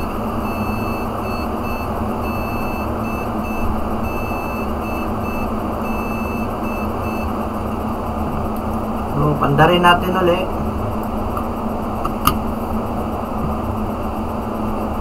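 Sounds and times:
computer buzzer beeping: 0:00.0 - 0:07.3.

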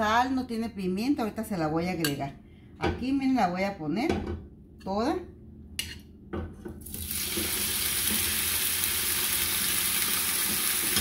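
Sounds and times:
meat sizzling in hot oil: 0:06.9 - 0:11.0.

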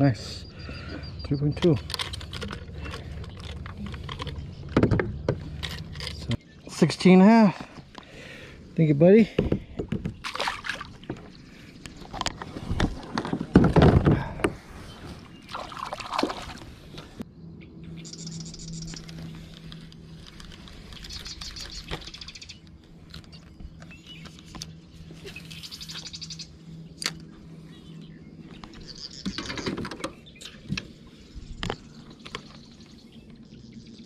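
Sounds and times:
low electric motor hum: 0:09.5 - 0:34.0.

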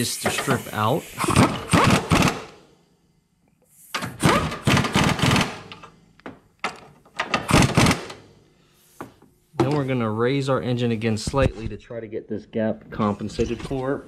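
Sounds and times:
impact wrench hammering: 0:01.2 - 0:02.6, 0:04.0 - 0:05.9, 0:07.2 - 0:08.2.

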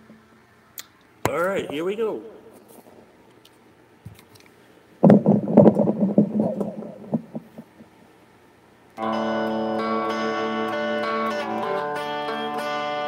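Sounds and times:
guitar strummed hard: 0:09.0 - 0:13.0.

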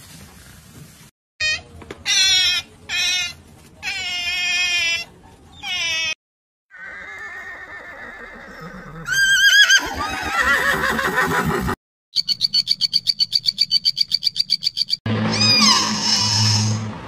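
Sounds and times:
seal pup crying: 0:01.4 - 0:06.2
horse whinnying: 0:06.7 - 0:11.8.

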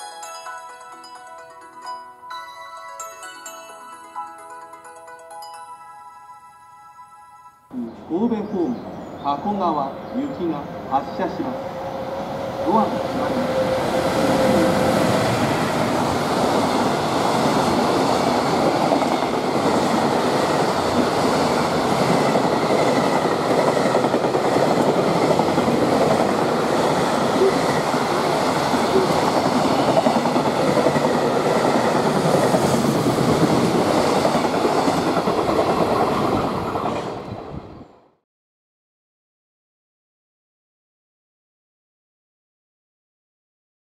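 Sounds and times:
freight train wheels on rails: 0:11.3 - 0:37.7.

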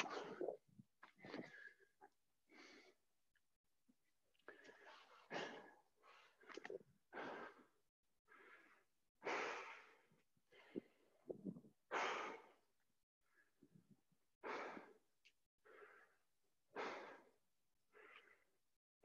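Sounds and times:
person breathing heavily: 0:02.5 - 0:03.0, 0:07.1 - 0:11.0, 0:15.6 - 0:18.5.

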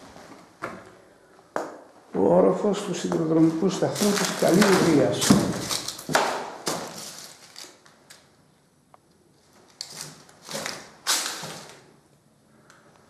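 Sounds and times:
footsteps scuffing: 0:03.0 - 0:07.3.

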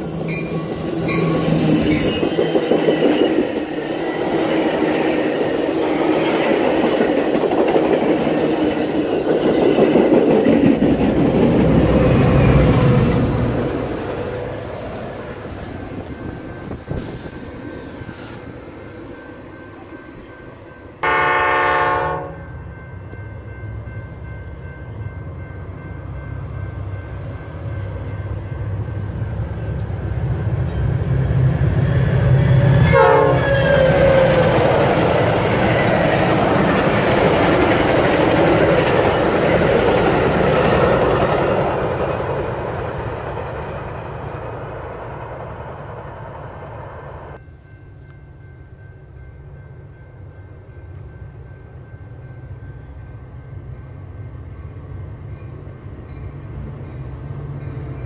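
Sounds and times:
train rumble and wheels on rails: 0:00.0 - 0:58.0
train horn: 0:21.0 - 0:22.6, 0:32.3 - 0:34.6.

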